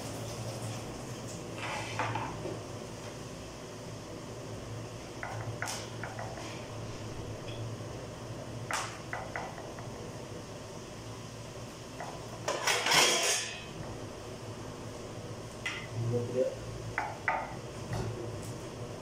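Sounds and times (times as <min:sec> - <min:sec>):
steady low hum: 0:00.0 - 0:19.0
pots and dishes clattering: 0:12.4 - 0:13.7.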